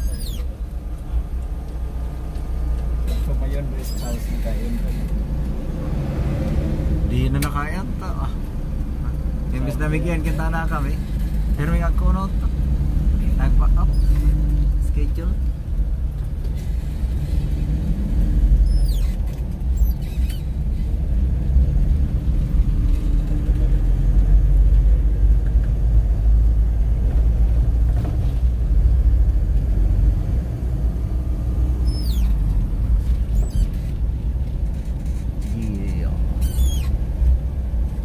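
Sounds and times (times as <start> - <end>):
engine and road noise: 0.0 - 38.0
high falling chirps: 31.8 - 32.4.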